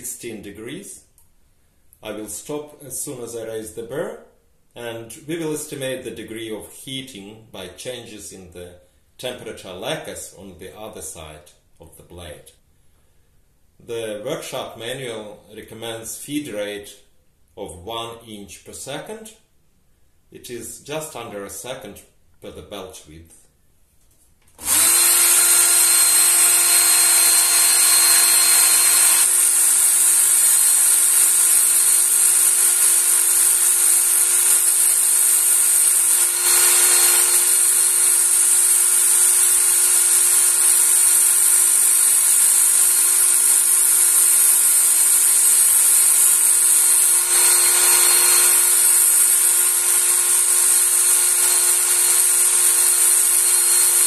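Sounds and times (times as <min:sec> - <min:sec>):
electric belt knife sharpener: 0:24.6 - 0:54.0.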